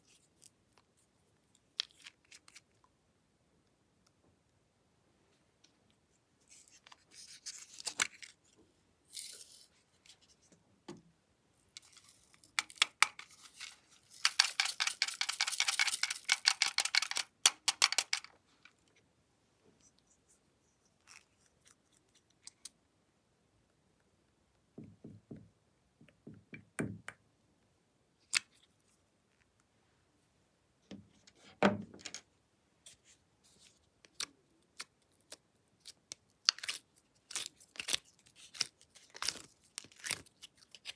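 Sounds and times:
plastic bottles clicking and tapping: 0:14.2 - 0:18.3.

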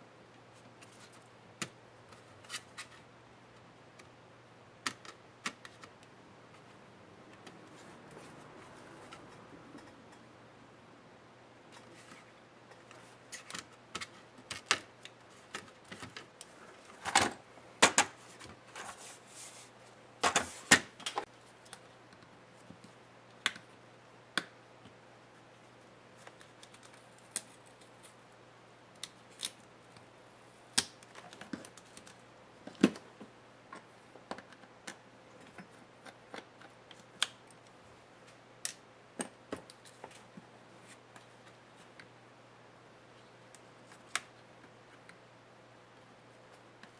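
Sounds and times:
laptop parts clicking and knocking: 0:04.8 - 0:06.0, 0:13.4 - 0:16.3.

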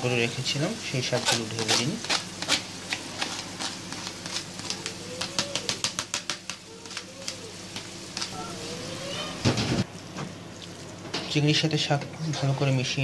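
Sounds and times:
faint sizzle in frying pan: 0:00.0 - 0:13.0
crackles and taps: 0:02.0 - 0:08.4.

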